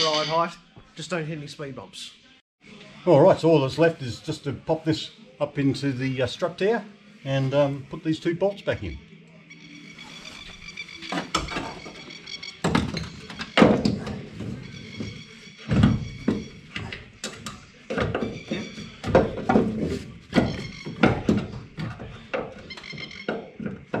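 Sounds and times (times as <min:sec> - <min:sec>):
background music: 0:00.0 - 0:24.0
metal knocks and clunks: 0:11.1 - 0:24.0.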